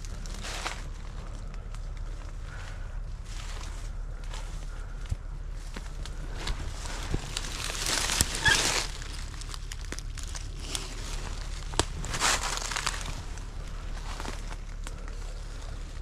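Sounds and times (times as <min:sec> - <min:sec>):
footsteps crunching through dry leaves: 0:00.0 - 0:16.0.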